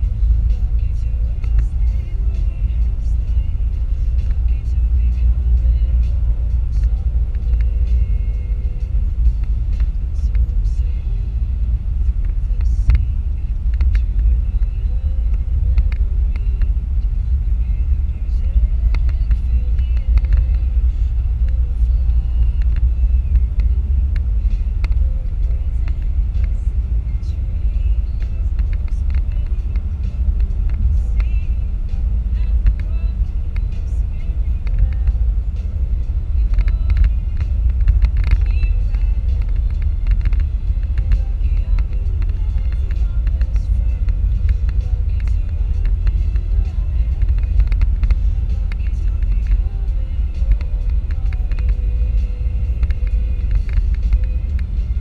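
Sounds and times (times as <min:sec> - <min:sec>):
car tyre and engine rumble: 0:00.0 - 0:55.0.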